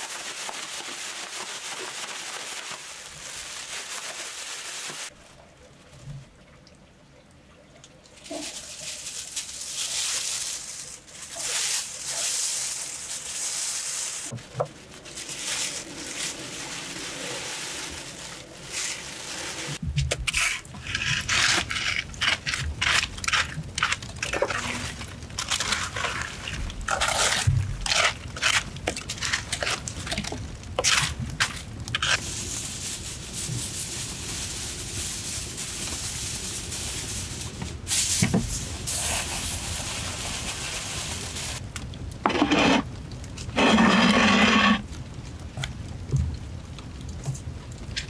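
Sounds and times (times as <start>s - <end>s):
plastic sheeting crinkling: 0.0s - 6.0s, 8.2s - 48.0s
stick scraping embers: 20.1s - 30.2s, 42.2s - 44.8s
fire crackling: 22.0s - 48.0s.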